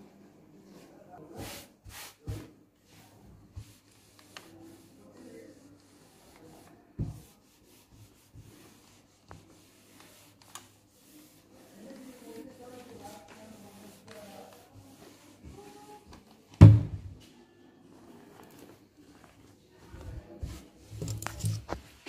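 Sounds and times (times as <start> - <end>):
iron sliding over paper: 3.6 - 15.9
knocks and thump: 16.6 - 17.1
paper rustling: 20.9 - 22.0.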